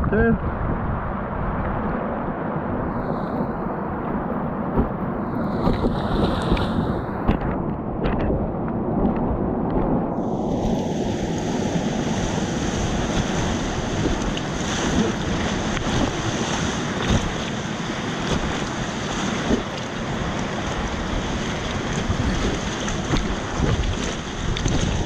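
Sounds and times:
wind noise on microphone: 0.0 - 25.0
water splashes: 2.8 - 8.2, 10.2 - 25.0
whitewater rapids rushing: 10.2 - 25.0.

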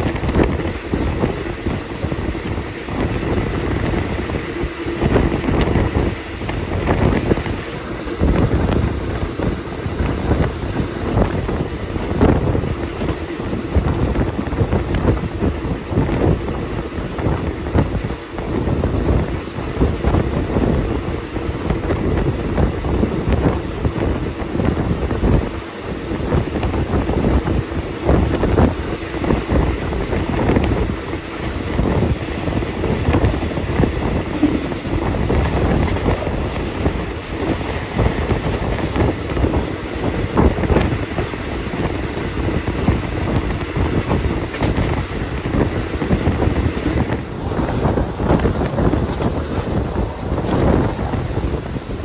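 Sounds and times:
train rumbling on rails: 0.0 - 52.0
wind buffeting microphone: 0.0 - 52.0.

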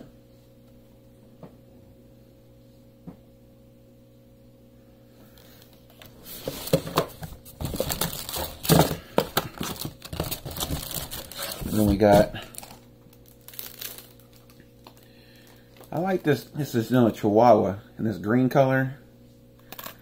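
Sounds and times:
plastic packaging crinkling: 6.3 - 16.5.

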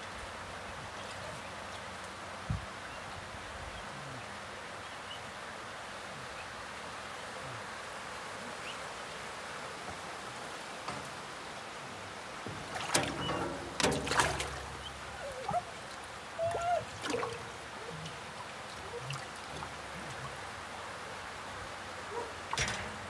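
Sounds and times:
water sloshing: 11.9 - 23.0
fish splashing in water: 12.4 - 20.5.

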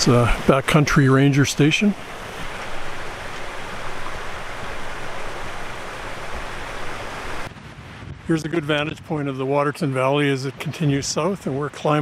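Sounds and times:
stream water flowing: 0.0 - 7.5.

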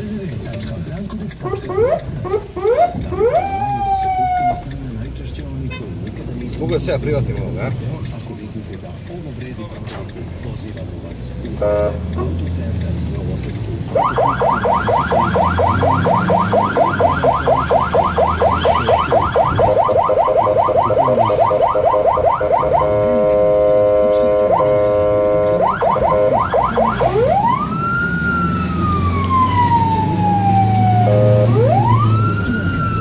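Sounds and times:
ambulance electronic siren: 1.4 - 4.7, 13.9 - 33.0.

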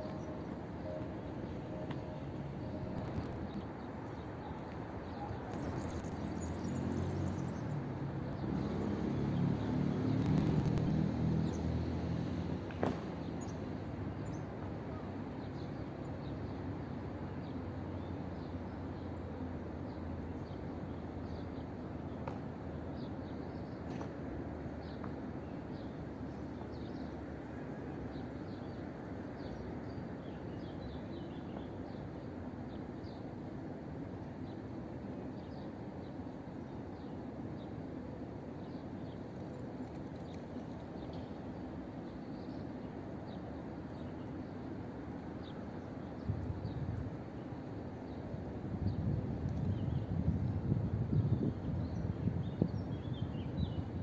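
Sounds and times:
small birds chirping: 3.0 - 11.8.

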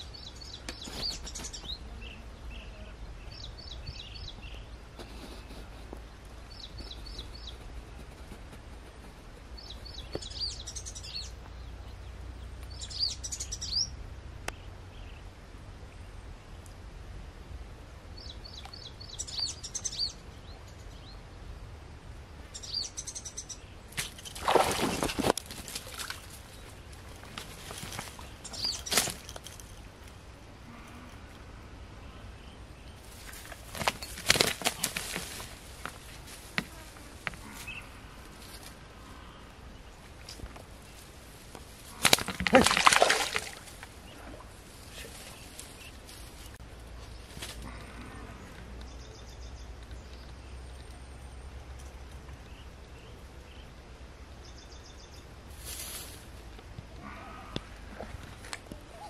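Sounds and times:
bird chirp: 0.0 - 5.6, 6.4 - 8.1, 9.4 - 15.3, 18.1 - 21.7, 22.4 - 24.4, 27.7 - 35.2, 44.0 - 53.8, 54.4 - 55.4
fish knocking among reeds: 24.0 - 26.3, 42.0 - 43.9
steady hiss: 53.2 - 56.8.

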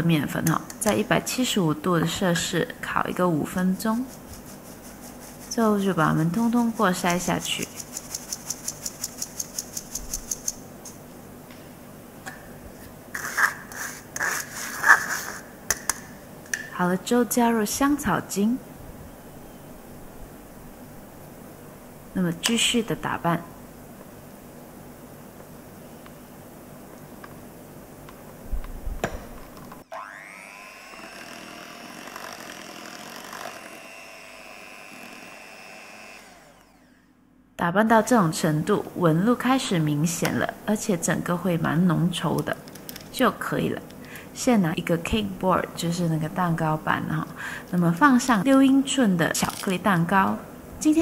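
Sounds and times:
electric hand mixer whine: 29.8 - 37.1.

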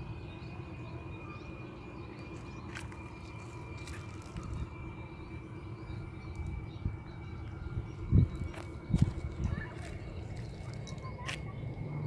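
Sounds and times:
thin steady whine: 0.0 - 12.0
low rumble: 2.1 - 11.1.

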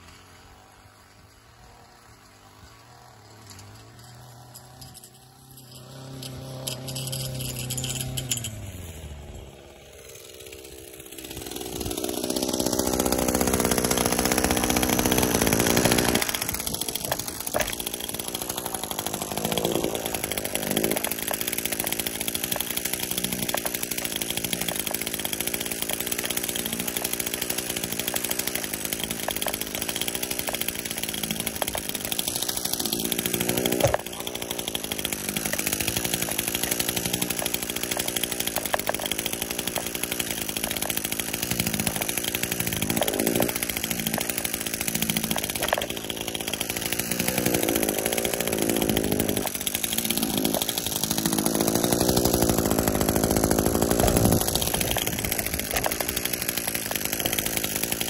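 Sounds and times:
string trimmer engine running: 0.0 - 58.0.

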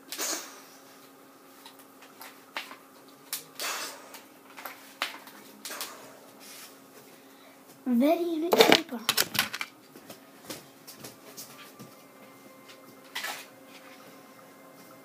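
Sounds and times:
faint steady hum: 0.0 - 15.0
toy rifle parts clicking: 8.6 - 9.7.

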